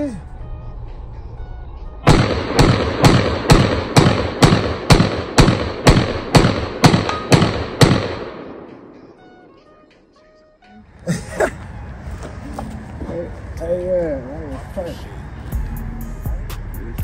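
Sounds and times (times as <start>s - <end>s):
gunshot echo: 2.0s - 8.9s
pistol shots: 2.0s - 8.9s.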